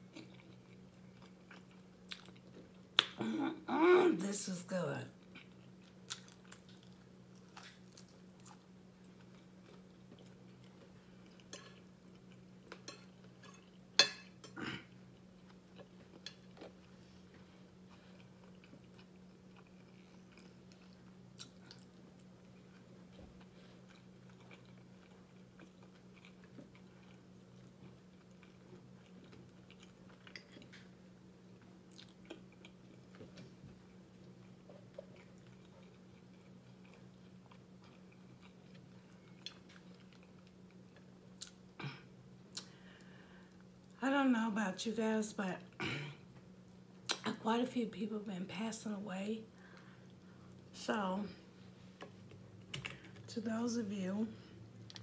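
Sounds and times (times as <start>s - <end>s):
chewing food: 0.0s - 3.2s, 5.2s - 41.8s
steady low hum: 0.0s - 55.0s.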